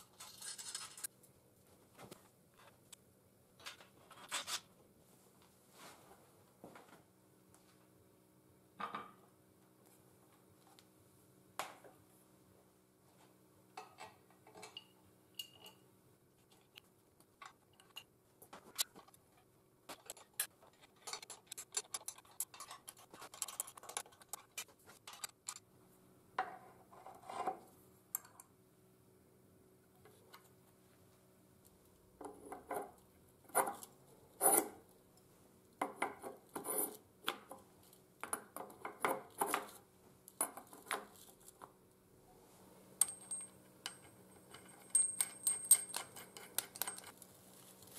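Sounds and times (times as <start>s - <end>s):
metal clinks and taps: 14.6s - 15.8s, 43.0s - 47.2s.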